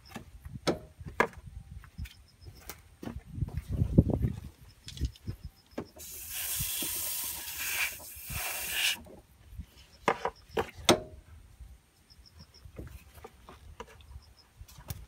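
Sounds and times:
aerosol can spraying: 0:06.0 - 0:09.0.

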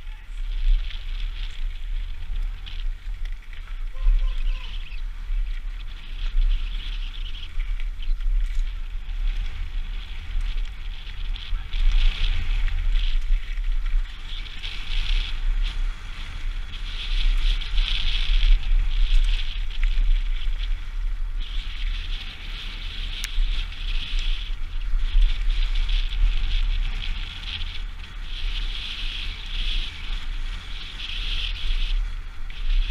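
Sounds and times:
bike clicks: 0:00.0 - 0:32.9
tyres rolling over gravel: 0:00.0 - 0:32.9
wind buffeting microphone: 0:00.0 - 0:32.9.

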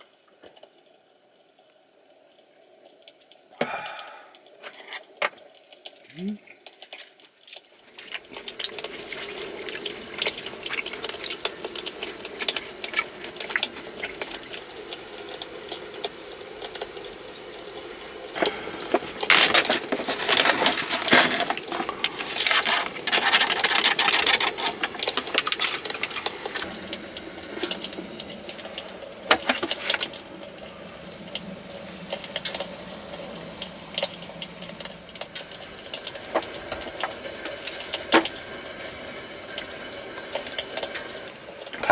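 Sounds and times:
low steady hum: 0:00.0 - 0:41.9
steady hiss: 0:00.0 - 0:41.9
utensils and dishes clattering: 0:18.4 - 0:30.2.

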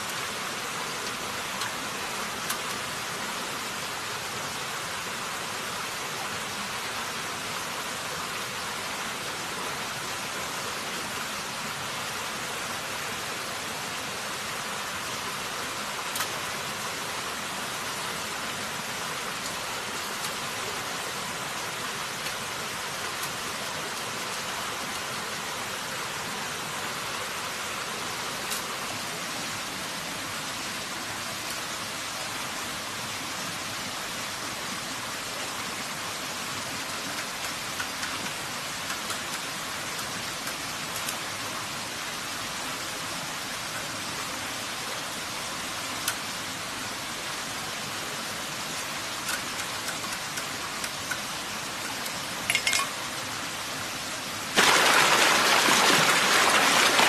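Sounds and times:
faint bamboo clicks: 0:00.0 - 0:02.9, 0:16.0 - 0:16.6, 0:28.4 - 0:28.8, 0:36.8 - 0:41.4, 0:45.9 - 0:46.4, 0:48.7 - 0:53.2
stream over rocks: 0:00.0 - 0:57.0.

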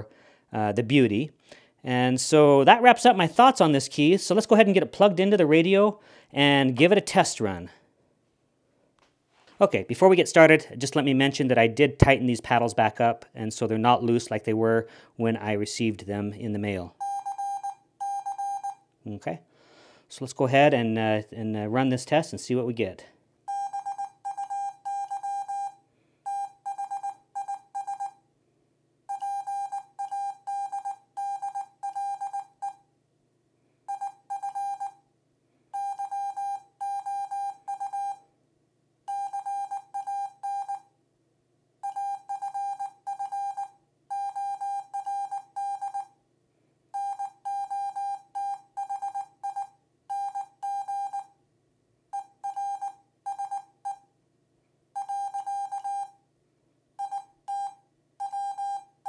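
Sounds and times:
morse code beeps: 0:17.0 - 0:18.8, 0:23.5 - 0:28.2, 0:29.1 - 0:32.8, 0:33.9 - 0:35.0, 0:35.8 - 0:38.3, 0:39.1 - 0:40.9, 0:41.8 - 0:46.2, 0:47.0 - 0:51.4, 0:52.1 - 0:54.1, 0:55.0 - 0:56.2, 0:57.0 - 0:59.0.

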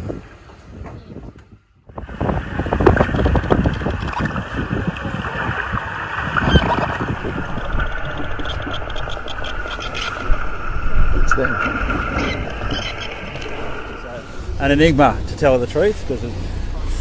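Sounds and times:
underwater water rush: 0:01.9 - 0:17.0
killer whale clicks: 0:05.6 - 0:14.0
killer whale high calls: 0:11.7 - 0:14.5.

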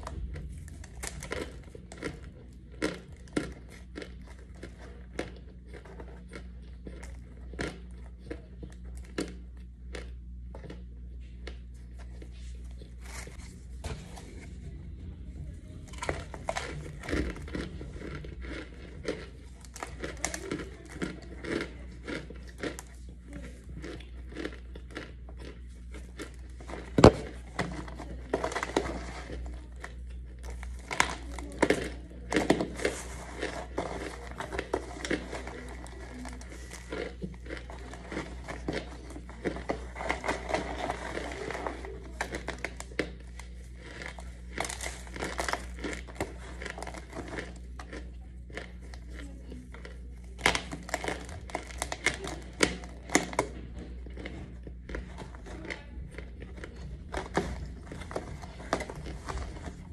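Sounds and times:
powder chunks crunching on plastic: 0:00.0 - 0:14.5, 0:15.8 - 0:59.9
chewing: 0:00.0 - 0:59.9.

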